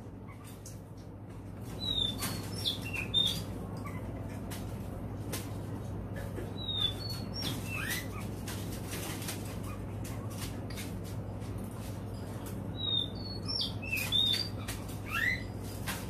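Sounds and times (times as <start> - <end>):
steady low hum: 0.0 - 16.0
bird whistling: 1.8 - 3.5, 6.6 - 8.1, 12.8 - 15.5.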